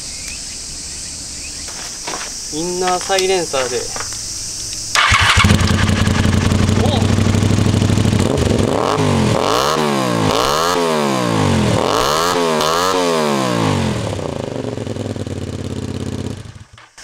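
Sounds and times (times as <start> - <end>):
motorcycle engine revving: 4.0 - 16.8.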